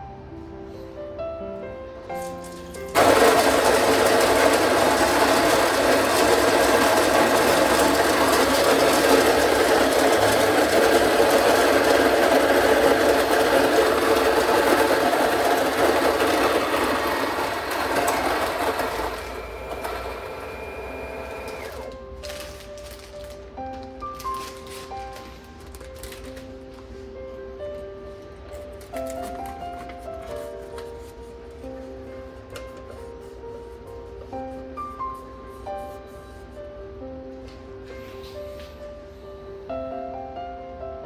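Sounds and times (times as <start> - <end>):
electric coffee grinder grinding beans: 2.9 - 22.0.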